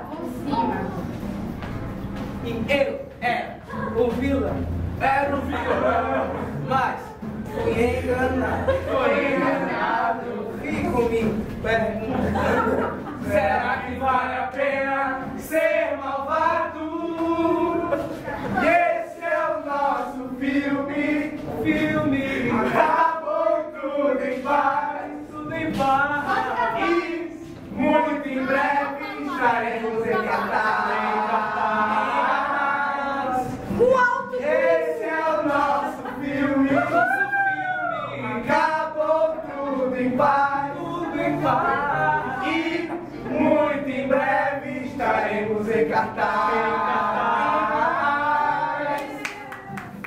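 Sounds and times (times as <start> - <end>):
group of voices singing: 3.6 - 50.0.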